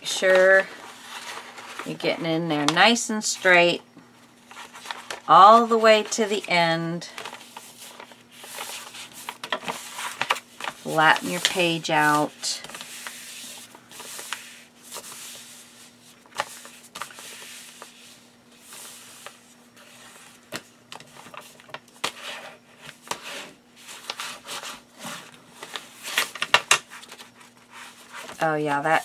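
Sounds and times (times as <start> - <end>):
hands rubbing paper: 26.9 - 29.0.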